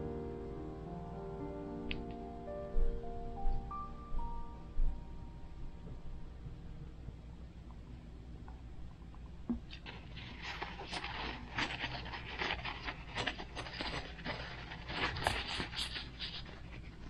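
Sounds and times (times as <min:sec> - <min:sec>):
paper towel rustling and crinkling: 0:09.7 - 0:17.0.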